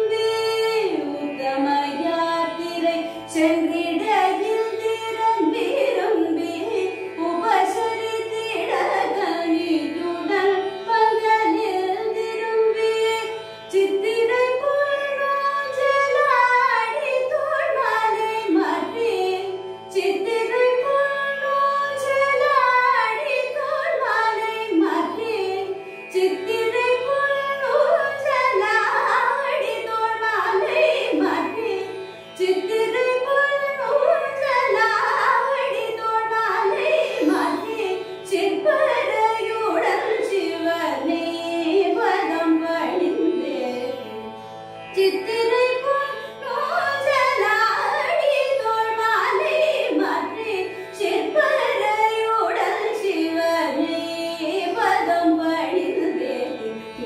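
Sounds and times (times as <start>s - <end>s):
woman singing: 0.0s - 44.2s, 44.9s - 57.0s
tanpura drone: 0.0s - 57.0s.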